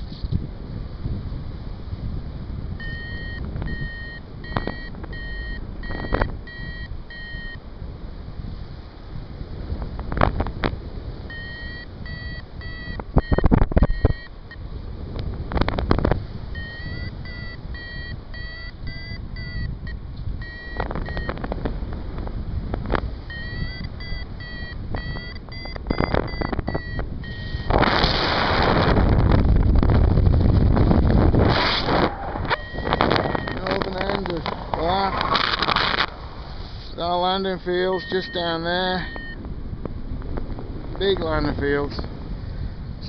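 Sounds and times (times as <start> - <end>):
wind buffeting microphone: 0.0 - 43.0
variometer beeping: 2.8 - 7.6, 11.2 - 14.7, 16.5 - 21.5, 23.2 - 27.9, 32.4 - 34.6, 37.3 - 39.5.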